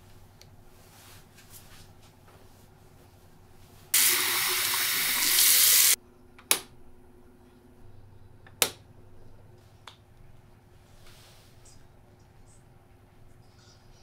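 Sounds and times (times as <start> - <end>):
tap water running into cup: 4.0 - 6.0.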